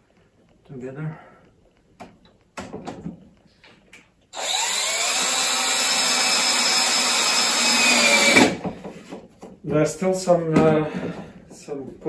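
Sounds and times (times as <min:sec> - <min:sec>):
cordless drill driving screw: 0:04.3 - 0:08.6.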